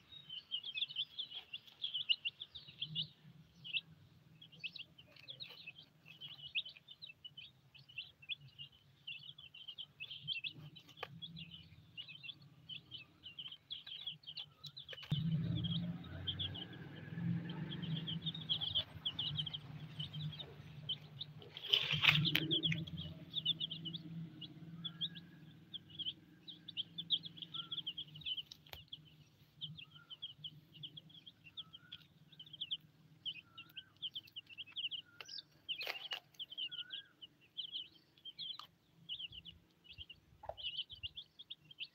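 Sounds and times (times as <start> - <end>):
chicks peeping: 0.0 - 41.9
low background rumble: 5.8 - 35.8.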